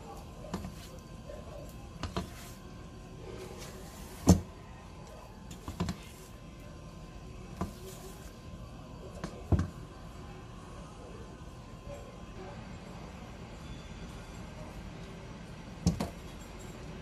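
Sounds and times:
spatula scraping batter: 1.9 - 4.4.

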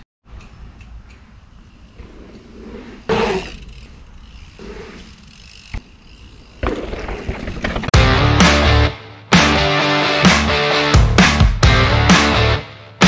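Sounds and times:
bike tyres rolling and skidding: 1.2 - 8.0
rock music: 7.9 - 13.0.

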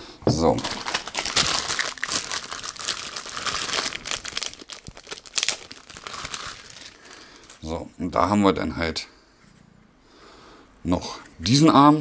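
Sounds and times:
plastic bag crinkling: 0.5 - 7.7.

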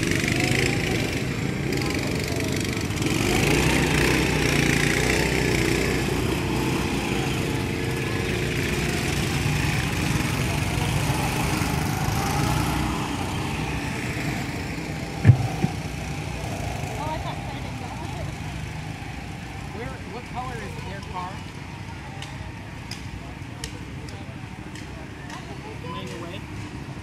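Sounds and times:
go-kart engines running: 0.0 - 27.0
short knock: 15.2 - 15.8.

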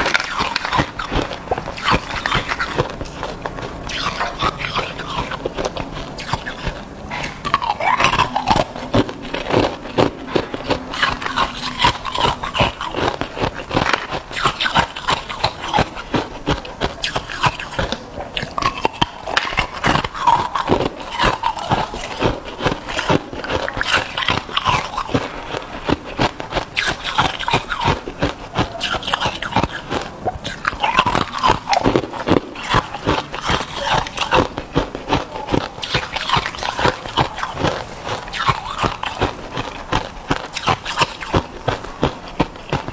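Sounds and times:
ice cubes crunching between teeth: 0.0 - 42.9.

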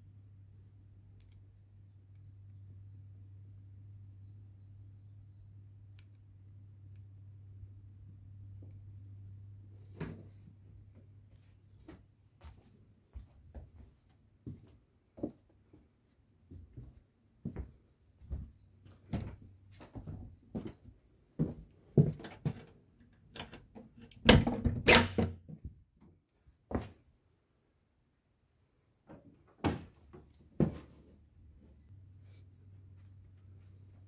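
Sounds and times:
footsteps on floorboards: 11.3 - 15.4, 16.5 - 22.6, 30.5 - 31.1.

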